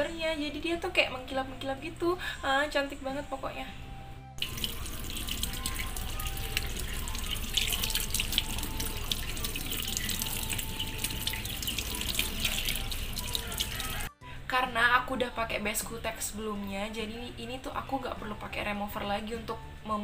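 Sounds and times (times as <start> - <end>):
hands being rinsed: 4.4 - 14.1
tap water running into a sink: 4.4 - 14.1.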